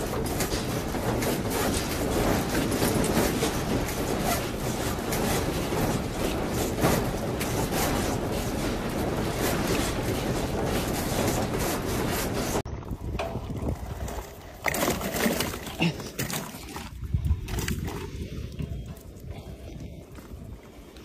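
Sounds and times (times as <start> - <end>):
sliding doors and house rattling: 0.0 - 19.6
continuous earthquake rumbling: 0.0 - 21.0.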